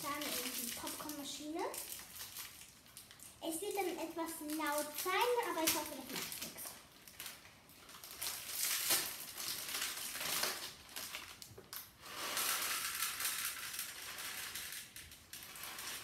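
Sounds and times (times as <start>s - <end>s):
plastic packet crinkling: 0.0s - 16.0s
kernels rattling into plastic cup: 12.2s - 16.0s.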